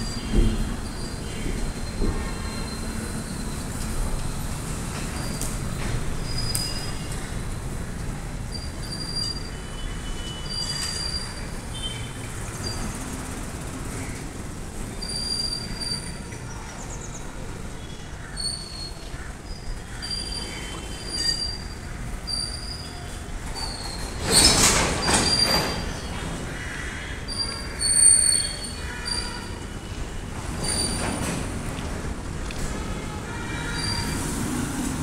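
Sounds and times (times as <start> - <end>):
high-pitched wheel squeals: 0.0 - 4.0, 6.2 - 7.2, 8.5 - 13.1, 14.9 - 16.4, 17.8 - 26.2, 27.2 - 31.3, 33.0 - 34.6
train clatter and screech: 0.0 - 35.0
freight train rumbling past: 19.8 - 35.0.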